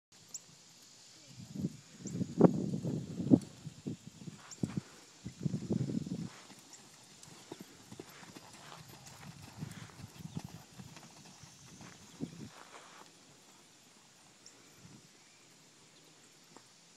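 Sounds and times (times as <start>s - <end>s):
horse hoofbeats on sand: 5.6s - 12.8s.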